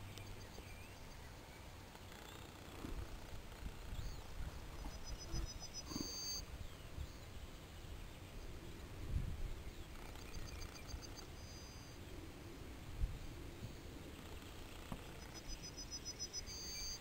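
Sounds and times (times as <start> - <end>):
small bird singing: 0.0 - 17.0
wind buffeting microphone: 8.5 - 11.1.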